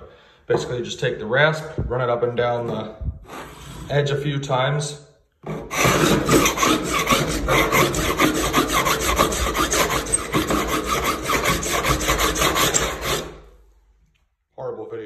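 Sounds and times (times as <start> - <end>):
drywall rasp scraping: 2.7 - 4.2, 5.4 - 13.8.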